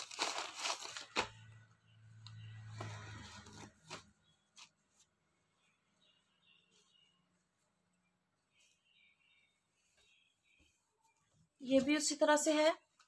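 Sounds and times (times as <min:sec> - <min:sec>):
plastic packaging crinkling: 0:00.0 - 0:01.6.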